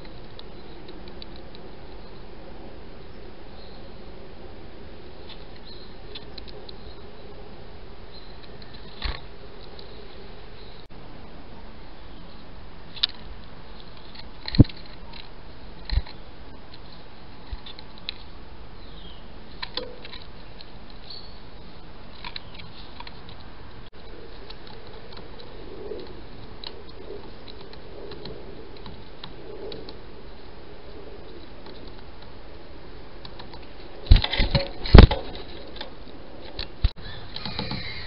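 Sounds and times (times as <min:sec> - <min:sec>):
faint high bird chirps: 0:21.0 - 0:22.9, 0:37.0 - 0:38.0.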